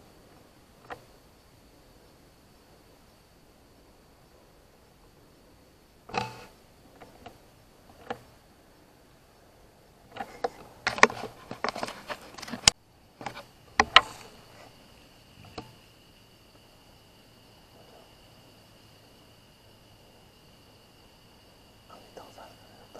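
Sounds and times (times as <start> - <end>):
high insect drone: 0.0 - 22.9
rustling and clicking: 6.1 - 8.4, 10.1 - 14.8.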